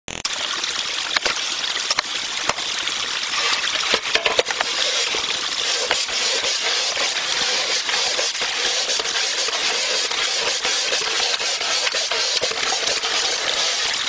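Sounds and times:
water trickling: 0.3s - 14.0s
metal bowls clinking: 3.4s - 4.6s.

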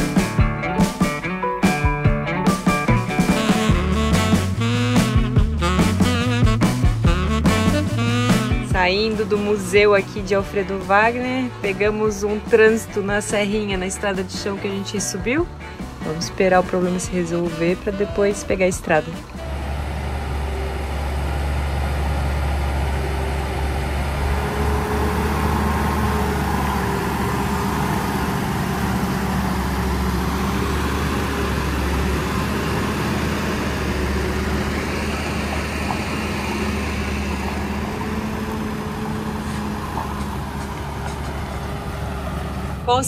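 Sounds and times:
diesel trucks driving past: 0.0s - 43.0s.

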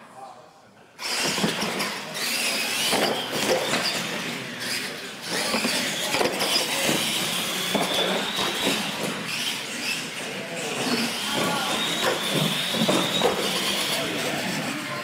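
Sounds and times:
electric motors whining: 1.0s - 15.0s
toy trucks knocking on ramps: 11.1s - 14.0s.

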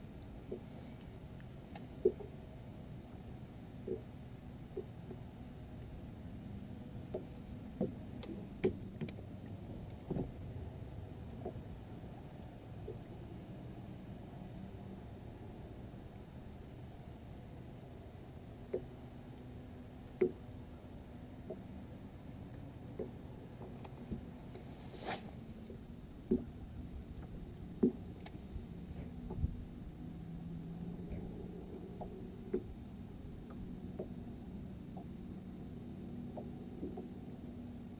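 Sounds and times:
boat motor humming: 0.0s - 37.9s
water knocking against hull: 7.1s - 10.4s
brief swish: 24.9s - 25.4s.

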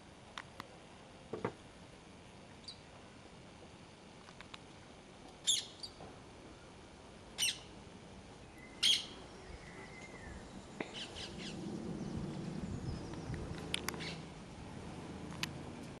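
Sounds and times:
bird giving harsh calls: 7.4s - 7.7s, 8.6s - 9.2s, 13.9s - 14.3s
low rumble: 10.2s - 16.0s.

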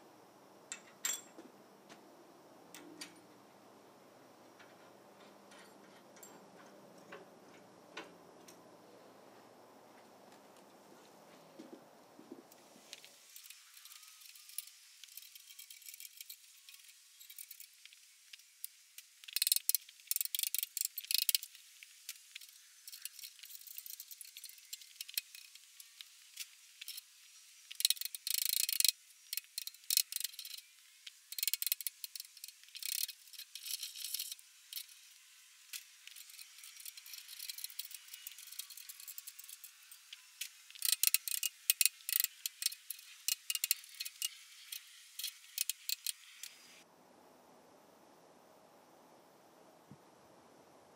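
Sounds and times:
metallic clicking and rattling: 4.6s - 8.6s, 35.7s - 46.2s.

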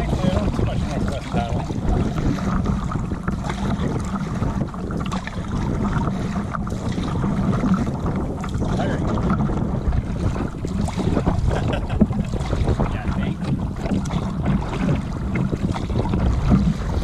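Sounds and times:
water slapping against canoe hull: 0.0s - 17.0s
wind noise on microphone: 0.0s - 17.0s.

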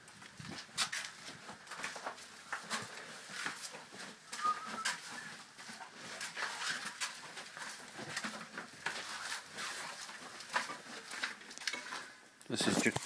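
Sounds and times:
footsteps on concrete: 0.0s - 11.3s.

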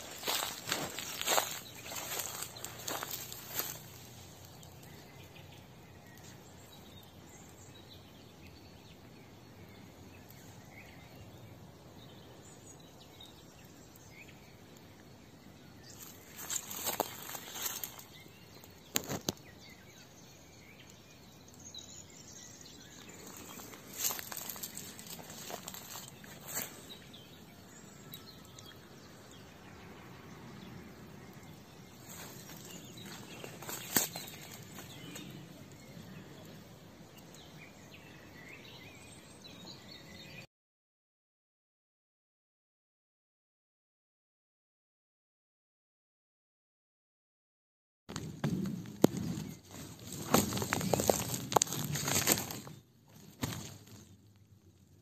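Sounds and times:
distant bird chirps: 0.0s - 40.5s.

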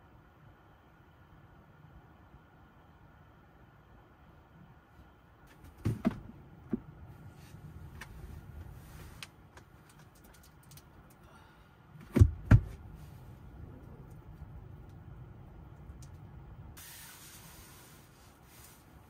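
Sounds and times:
heavy thumps: 5.6s - 6.9s
knocks clicks and rustling: 9.2s - 11.2s.

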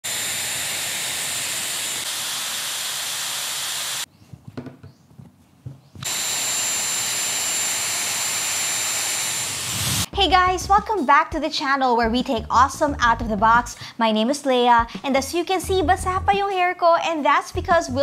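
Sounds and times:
hair dryer air rush and whine: 0.0s - 4.1s, 6.0s - 10.1s.

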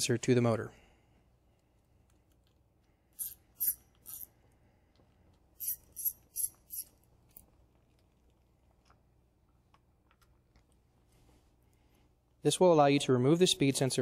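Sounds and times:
wrench clicking on screws: 3.2s - 4.3s.

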